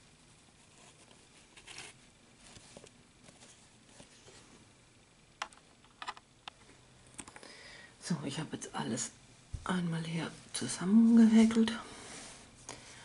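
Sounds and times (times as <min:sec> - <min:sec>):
yarn rustling and scraping: 0:00.5 - 0:04.6.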